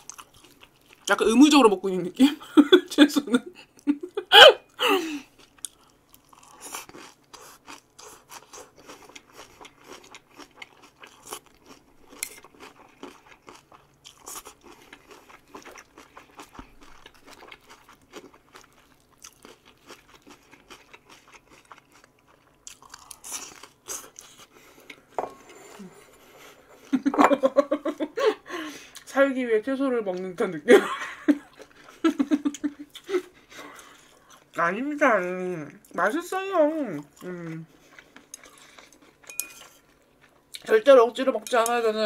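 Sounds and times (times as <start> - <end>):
person chewing crunchy vegetables: 0.0 - 1.2, 5.2 - 27.0, 31.5 - 34.6, 36.8 - 40.8.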